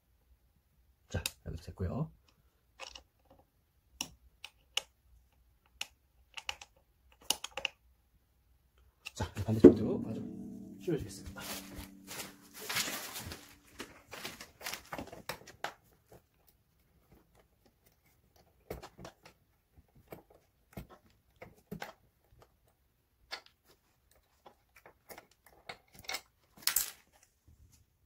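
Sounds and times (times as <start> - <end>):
parts handling clicks and rustles: 2.3 - 3.4, 23.3 - 27.3.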